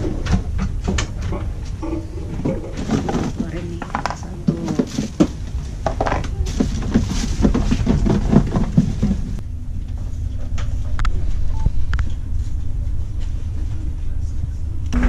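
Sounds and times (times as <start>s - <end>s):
low machinery hum: 0.0s - 15.0s
packaging rustling and knocking: 2.8s - 9.4s.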